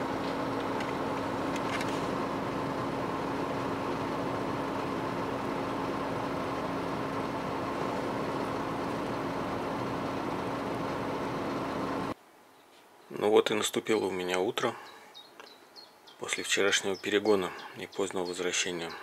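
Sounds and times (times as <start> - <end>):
car engine humming: 0.0 - 12.2.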